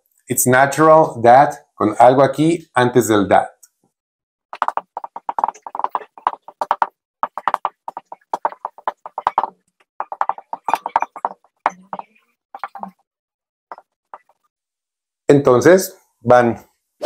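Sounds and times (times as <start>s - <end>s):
marker squeaking on whiteboard: 4.5s - 13.0s, 13.7s - 14.5s.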